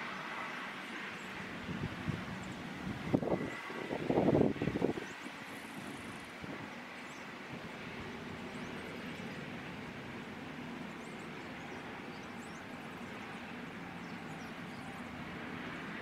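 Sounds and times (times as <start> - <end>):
rushing wind: 0.0 - 16.0.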